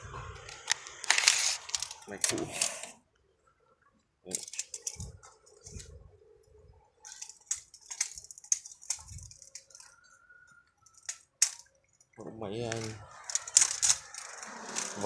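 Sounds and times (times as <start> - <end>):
camera handling noise: 0.4 - 2.9.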